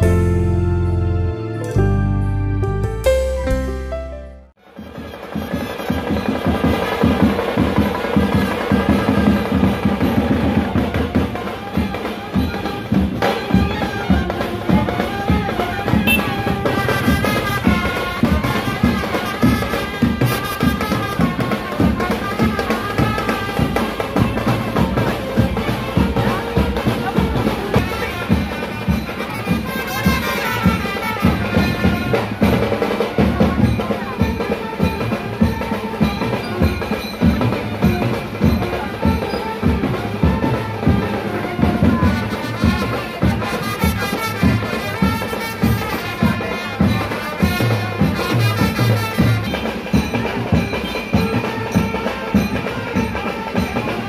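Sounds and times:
heavy drums beating: 4.8s - 54.0s
trumpets playing: 11.0s - 36.8s, 37.8s - 54.0s.

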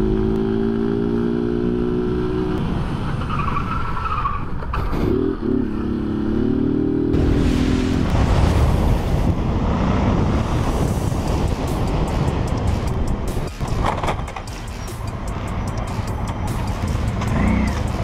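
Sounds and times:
wind and road noise: 0.0s - 18.0s
motorcycle engine running: 11.2s - 18.0s.

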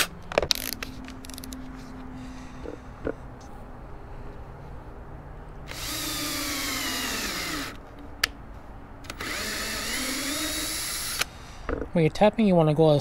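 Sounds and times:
power drill boring into plastic: 5.7s - 7.8s, 9.2s - 11.3s.

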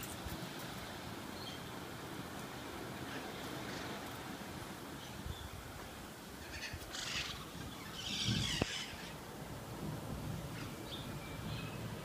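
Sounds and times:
birds harsh calls: 6.4s - 9.2s.

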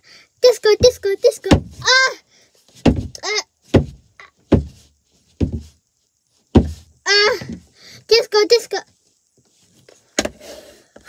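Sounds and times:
child vocal sounds: 0.0s - 2.3s, 3.2s - 3.5s, 7.1s - 8.8s.

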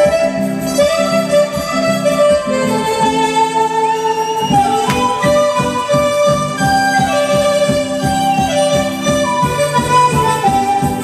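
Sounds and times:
regular low beat: 4.6s - 9.7s.

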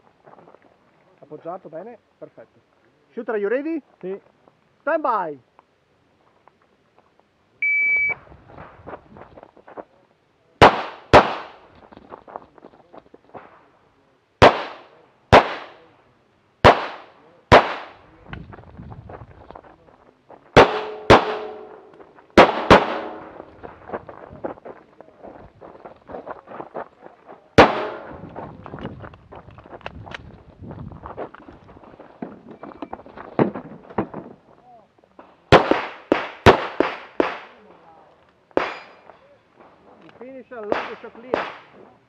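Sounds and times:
shot timer beep: 7.6s - 8.2s
pistol shots: 10.6s - 11.6s, 14.4s - 15.8s, 16.6s - 18.0s, 20.6s - 23.5s, 27.6s - 28.2s, 35.5s - 37.6s, 40.7s - 41.7s
shooter moving clicks and scuffs: 23.4s - 34.4s.

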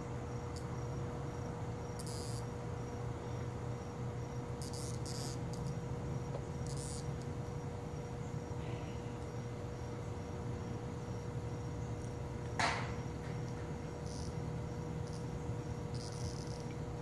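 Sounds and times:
low steady hum: 0.0s - 17.0s
insect pulsing high chirp: 0.2s - 17.0s
short high insect buzzes: 1.9s - 2.6s, 4.6s - 5.8s, 6.6s - 7.3s, 14.0s - 16.7s.

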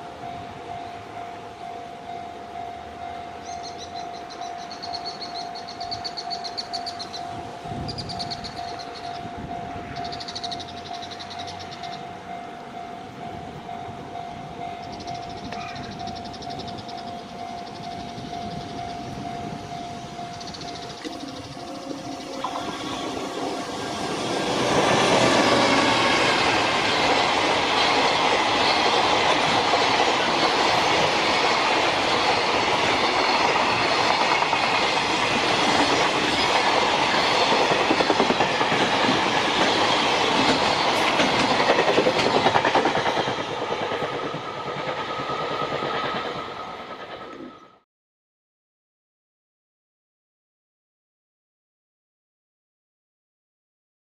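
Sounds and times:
steady tone: 0.0s - 39.0s
rhythmic rail clatter: 0.0s - 47.8s
train wheels rolling on rails: 0.0s - 47.8s.

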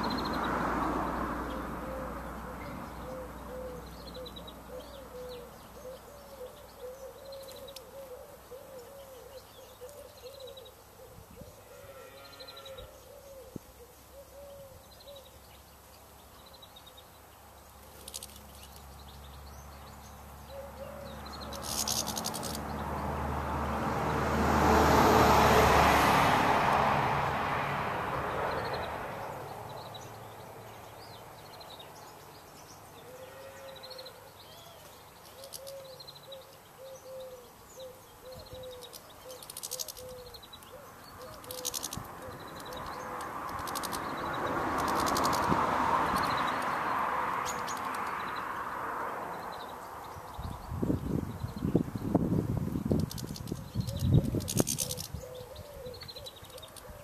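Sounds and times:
passing engine: 0.0s - 5.6s, 18.1s - 31.4s, 40.9s - 57.0s
small birds chirping: 0.0s - 23.6s, 28.3s - 57.0s
pigeon cooing: 1.8s - 11.2s, 36.8s - 43.9s, 53.9s - 57.0s.

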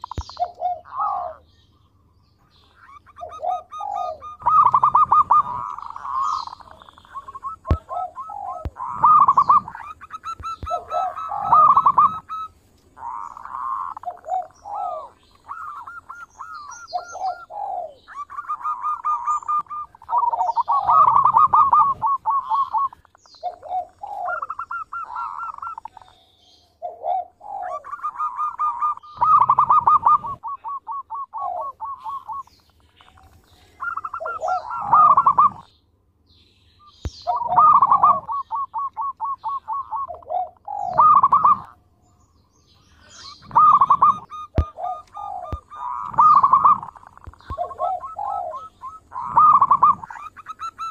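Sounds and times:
dove cooing: 0.0s - 1.5s, 2.5s - 35.7s, 37.0s - 41.8s, 42.9s - 50.9s.

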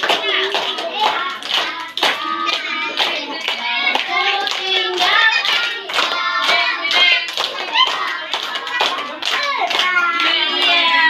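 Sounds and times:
children singing: 0.0s - 11.0s
hands clapping: 0.0s - 11.0s.

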